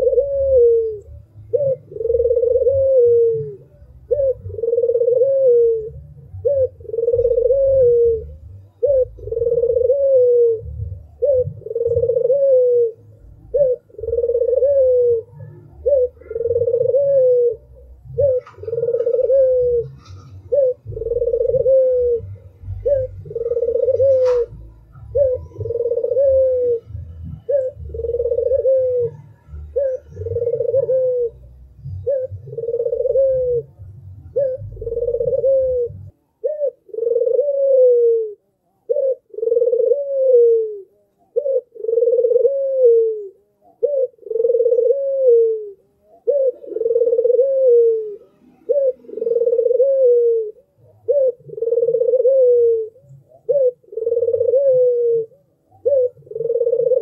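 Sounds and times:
dove cooing: 0.0s - 57.0s
low rumble: 17.6s - 30.6s.

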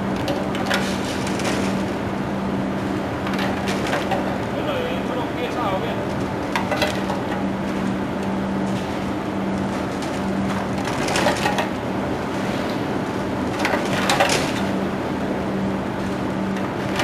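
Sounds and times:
freezer machine hum: 0.0s - 17.0s.

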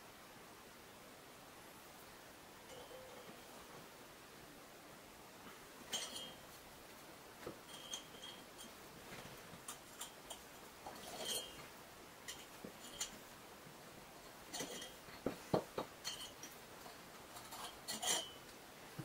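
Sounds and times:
metal scrape: 9.7s - 11.7s, 17.3s - 18.4s.

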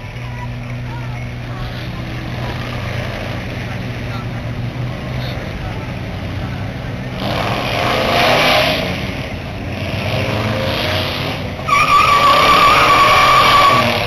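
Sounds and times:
car engine revving: 0.0s - 14.0s
high-pitched squeal: 11.2s - 14.0s.

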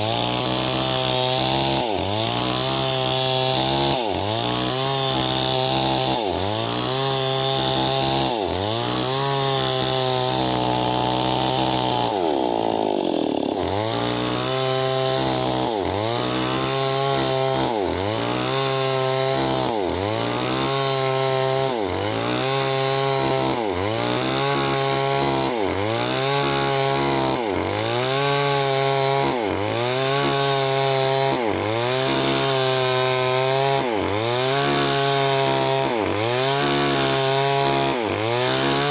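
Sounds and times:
chainsaw cutting log: 0.0s - 38.9s.

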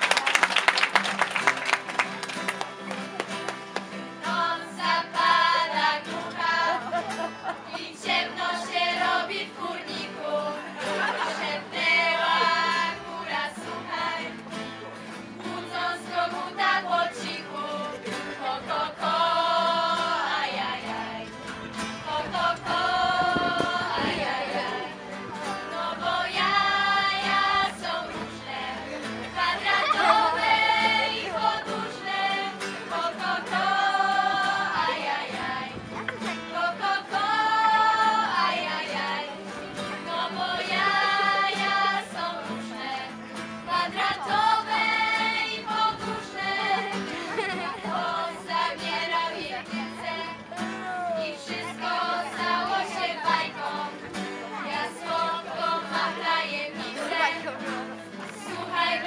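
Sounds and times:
applause: 0.0s - 4.1s
teenagers singing together: 4.0s - 59.0s.

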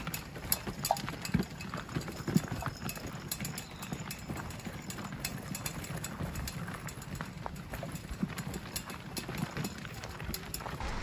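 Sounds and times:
stroller wheels crunching on gravel: 0.0s - 11.0s
footsteps on gravel: 10.6s - 11.0s.

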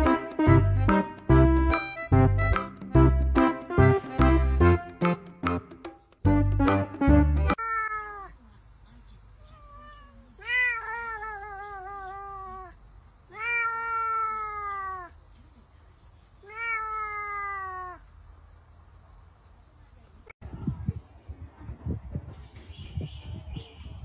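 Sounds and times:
cat meowing: 7.6s - 8.4s, 9.4s - 15.2s, 16.4s - 18.0s.

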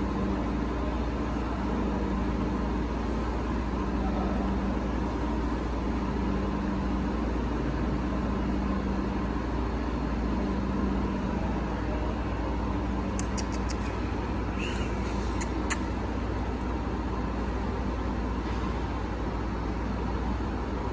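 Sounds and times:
low mechanical hum: 0.0s - 20.9s
sharp clicks: 13.2s - 13.9s.

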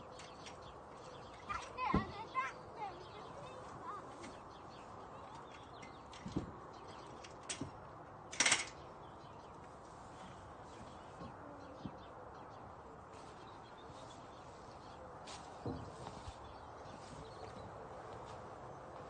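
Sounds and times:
faint birdsong: 0.0s - 19.0s
metal step clattering onto ground: 8.3s - 8.8s.

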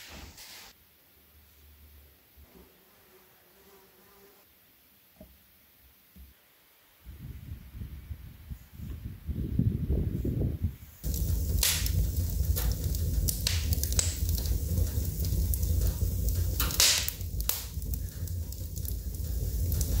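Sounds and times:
low rumble: 11.0s - 20.0s
wood fire crackling: 11.0s - 20.0s.

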